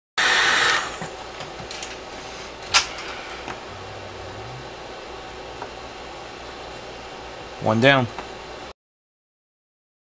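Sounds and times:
faint low hum: 2.7 - 6.1.

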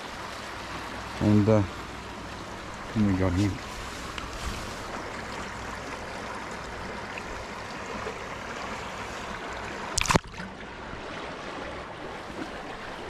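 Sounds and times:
river water washing over shallows: 0.0 - 13.0
fish splash: 9.8 - 10.6.

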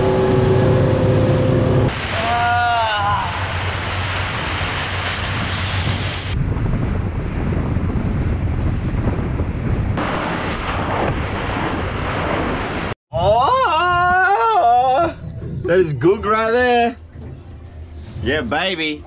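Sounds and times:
sea and water noise: 0.0 - 19.0
wind buffeting microphone: 3.5 - 13.0.

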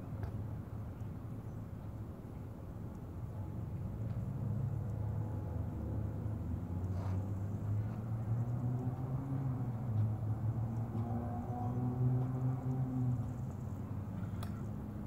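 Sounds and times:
faint scrape: 6.8 - 7.3.

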